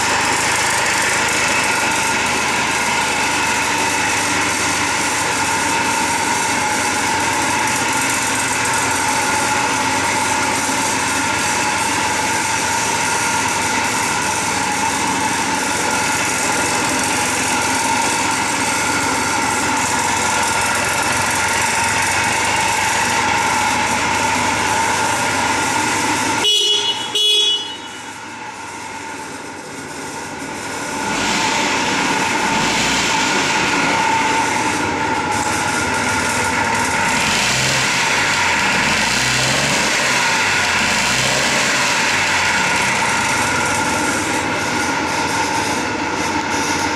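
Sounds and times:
scooter engine running: 0.0s - 46.9s
scooter horn beeps: 26.4s - 28.3s.

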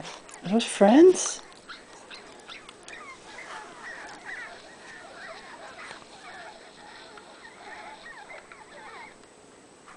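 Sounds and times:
animal squeaks and chirps: 1.4s - 9.2s.

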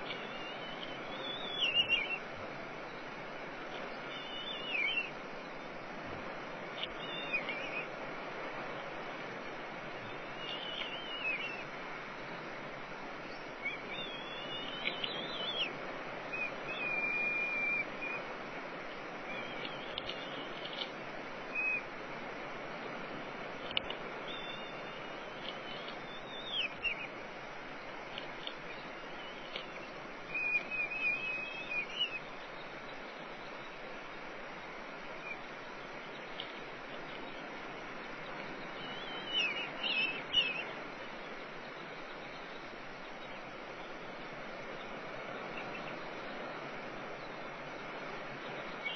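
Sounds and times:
steady background hiss: 0.0s - 48.9s
eagle whistled calls: 0.1s - 2.2s, 4.1s - 5.1s, 6.8s - 7.9s, 10.0s - 11.7s, 13.6s - 18.3s, 21.5s - 21.9s, 24.3s - 27.1s, 28.7s - 32.2s, 38.7s - 40.7s.

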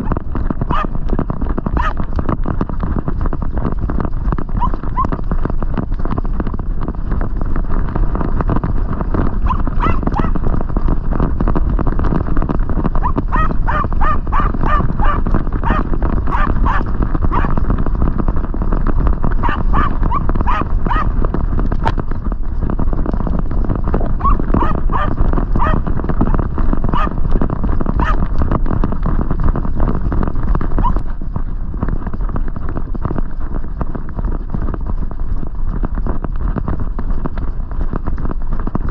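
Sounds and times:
terrier barking high yaps: 0.7s - 0.9s, 1.8s - 2.0s, 9.5s - 10.4s, 13.0s - 17.6s, 19.4s - 21.1s, 24.2s - 25.8s.

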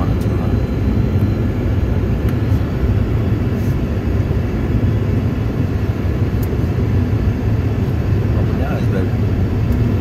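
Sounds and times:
airliner cabin engine rumble: 0.0s - 10.0s.

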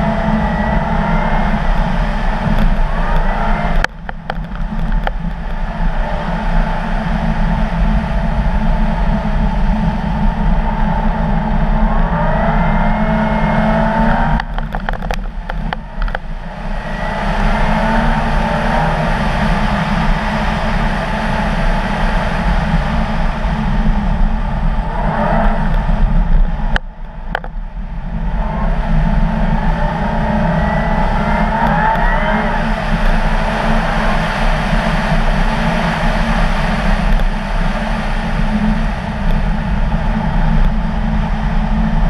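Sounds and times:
car engine revving: 0.0s - 26.8s
tyre and wind noise: 0.0s - 42.0s.

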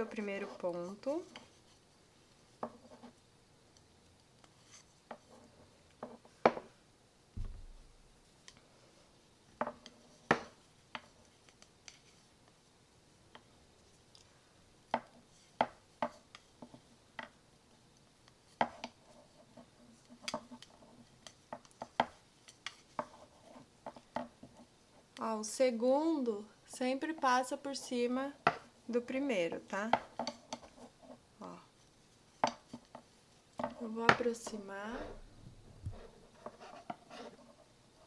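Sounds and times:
soft low thump: 7.4s - 8.2s.

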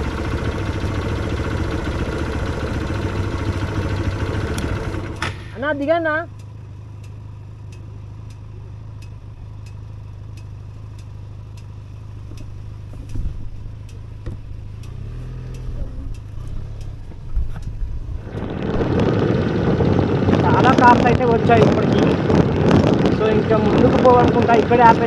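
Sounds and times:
motorcycle engine humming: 0.0s - 25.0s
low thumps: 12.0s - 24.8s
wind noise on microphone: 12.4s - 14.4s, 15.8s - 25.0s.

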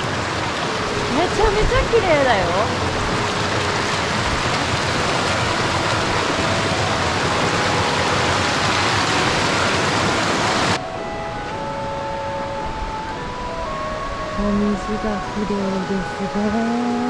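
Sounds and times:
river rushing over rocks: 0.0s - 10.8s.

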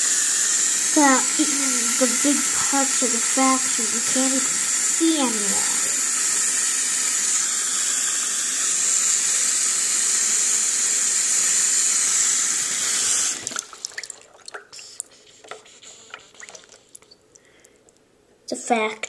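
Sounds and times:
water pouring from a tap: 13.2s - 15.1s
water drips and splashes: 13.4s - 15.1s.

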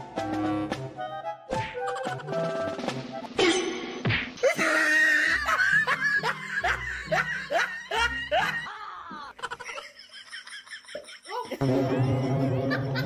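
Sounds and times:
laughter in quick bursts: 5.4s - 13.0s.

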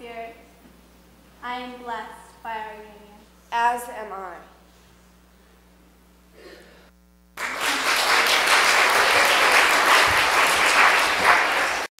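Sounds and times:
audience applauding: 7.4s - 12.0s.

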